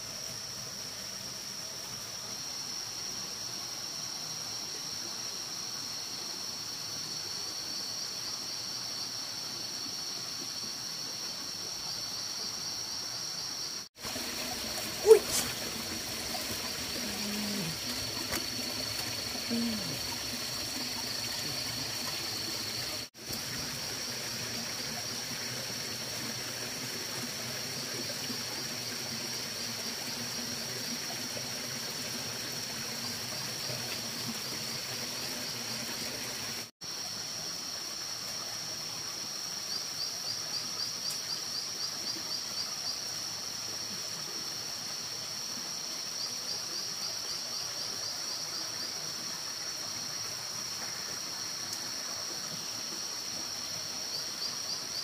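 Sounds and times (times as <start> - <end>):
high insect buzz: 7.1 - 24.0
water trickling: 14.0 - 36.7.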